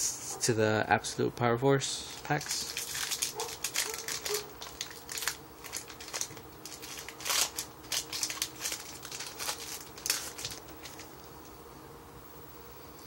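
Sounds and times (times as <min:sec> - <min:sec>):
foil wrapper crinkling: 0:02.0 - 0:11.3.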